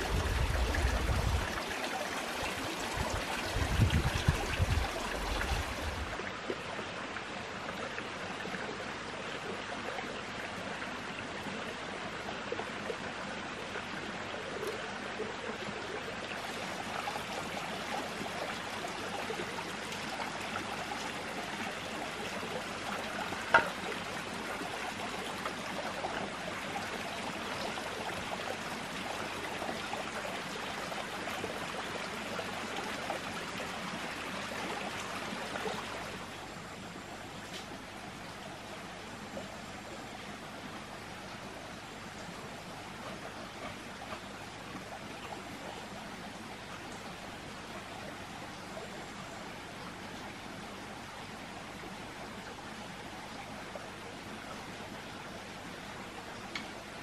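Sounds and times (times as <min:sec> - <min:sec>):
stream running water: 0:00.0 - 0:57.0.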